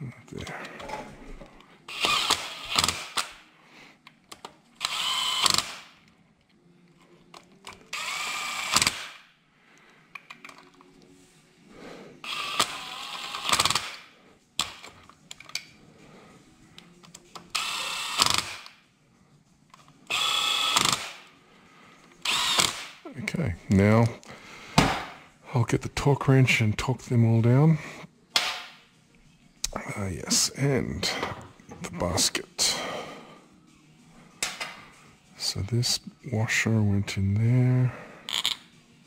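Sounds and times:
cordless drill motor whine: 1.9s - 2.9s, 4.8s - 5.6s, 7.9s - 8.9s, 12.3s - 13.7s, 17.6s - 18.4s, 20.1s - 21.0s, 22.2s - 22.7s.

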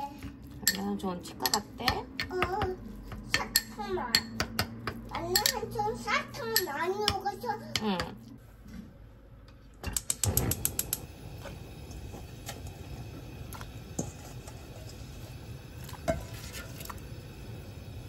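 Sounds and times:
gas igniter ticking: 9.8s - 14.0s
gas burner running: 9.8s - 18.0s.

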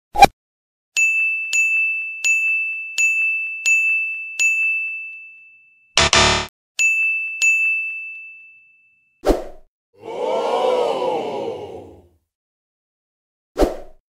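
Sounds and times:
electronic high dings: 1.0s - 9.2s.

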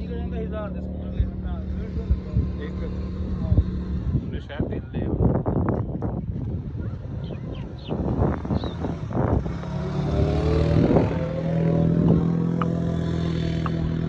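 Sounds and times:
motor engine running: 5.9s - 14.0s.

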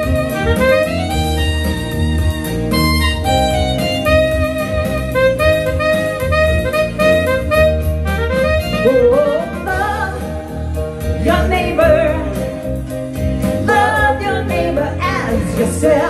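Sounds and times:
bass accompaniment: 0.0s - 16.0s
digital piano: 0.0s - 16.0s
woman singing: 8.8s - 12.6s, 13.6s - 16.0s.

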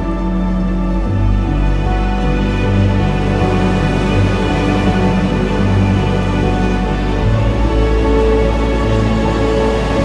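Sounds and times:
background music with held chords: 0.0s - 10.0s.

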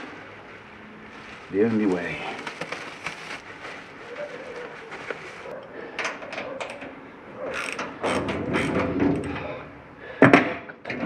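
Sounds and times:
ratchet spanner clicking: 7.5s - 8.2s.

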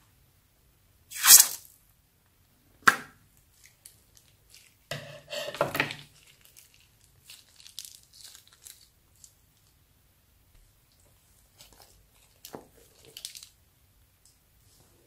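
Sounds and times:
plastic bag crinkling: 5.9s - 9.8s, 11.6s - 13.6s.

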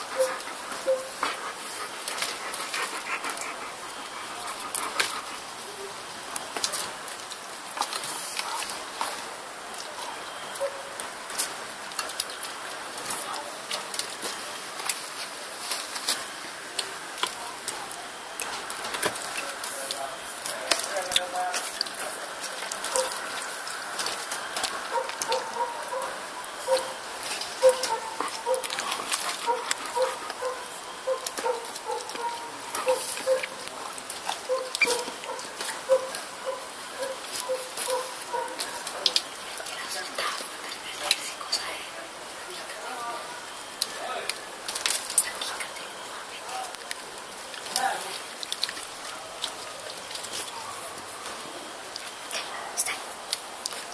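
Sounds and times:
dog chewing grapes: 0.0s - 5.7s, 17.2s - 41.2s
dog chewing with wet smacks: 24.6s - 27.0s.

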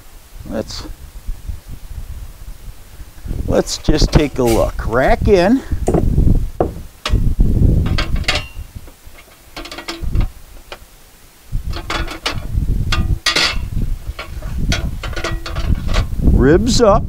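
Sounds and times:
sheet metal clinking and rattling: 6.6s - 10.9s, 11.6s - 16.2s.

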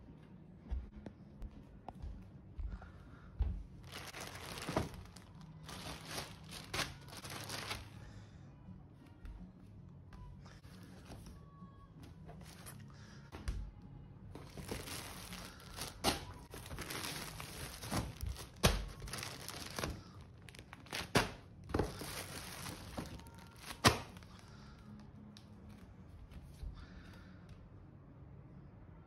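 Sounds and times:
plastic bags crinkling: 3.8s - 8.0s, 14.4s - 24.4s.

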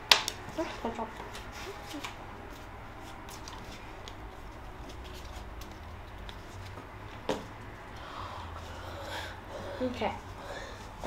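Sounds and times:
trading cards rustling and tapping: 0.0s - 8.0s.

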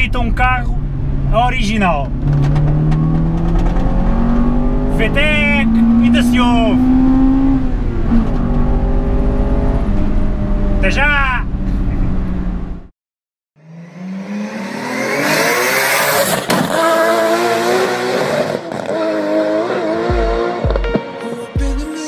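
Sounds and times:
car engine revving with whoosh: 0.8s - 10.9s, 13.6s - 20.8s
music with deep bass thumps: 20.0s - 22.0s.

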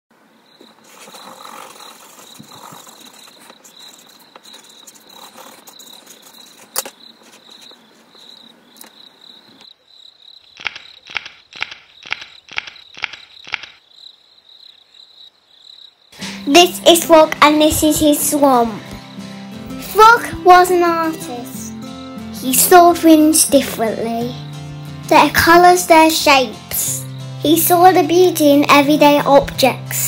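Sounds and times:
cricket trill: 0.2s - 16.2s
pencil scribbling on paper: 0.8s - 7.8s
cartoon footstep sound effects: 10.6s - 13.8s.

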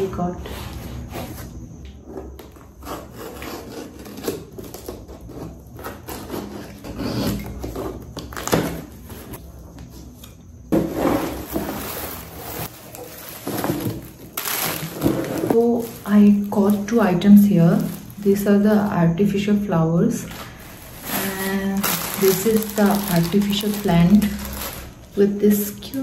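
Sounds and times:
plastic wrapping rustling: 10.8s - 19.4s, 20.1s - 26.0s.

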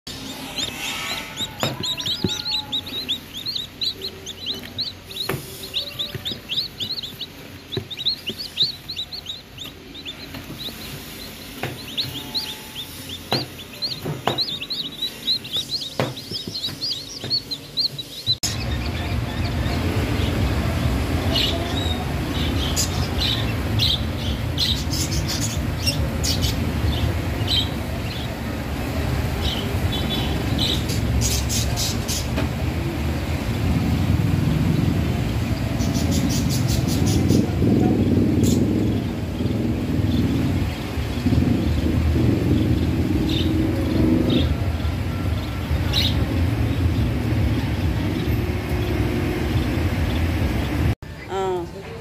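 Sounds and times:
chicks peeping: 0.1s - 51.0s
lovebirds chirping: 0.1s - 51.7s
low rumble: 32.6s - 51.0s.

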